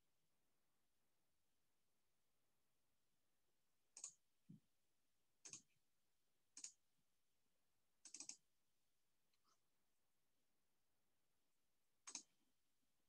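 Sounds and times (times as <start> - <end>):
computer mouse clicks: 4.0 - 4.2, 5.4 - 5.7, 6.6 - 6.8, 8.0 - 8.4, 12.0 - 12.4.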